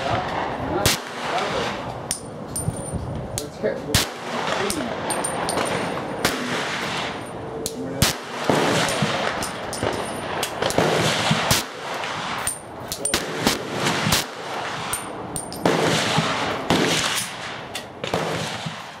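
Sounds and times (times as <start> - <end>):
pistol shots reverberating: 3.9 - 7.2, 8.0 - 19.0.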